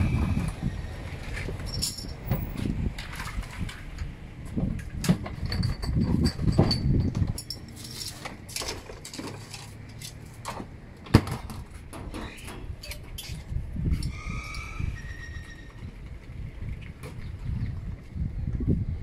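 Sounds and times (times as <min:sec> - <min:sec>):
low rumble: 0:00.0 - 0:07.5.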